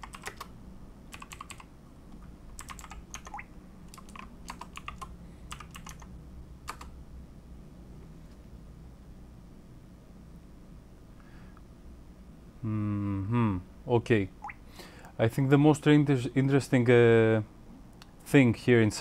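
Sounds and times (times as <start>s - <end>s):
keyboard typing: 0.0s - 0.5s, 1.1s - 1.7s, 2.6s - 6.9s.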